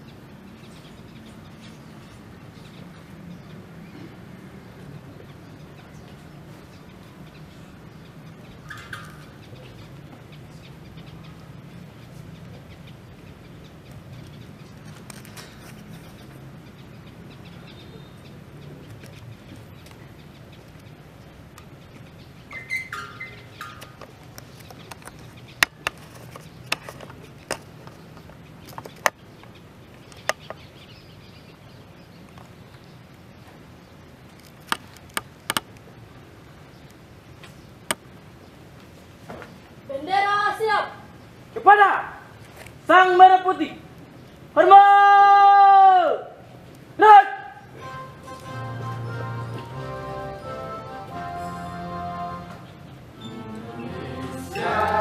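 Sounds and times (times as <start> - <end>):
bird calling: 6.8 - 14.8, 21.6 - 31.4, 47.6 - 55.0.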